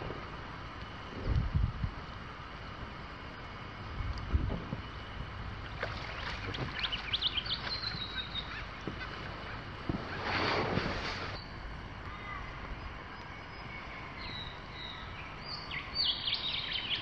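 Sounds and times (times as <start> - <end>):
water noise: 0.0 - 17.0
wind: 0.0 - 17.0
high chirping bird calls: 6.0 - 10.2, 13.2 - 17.0.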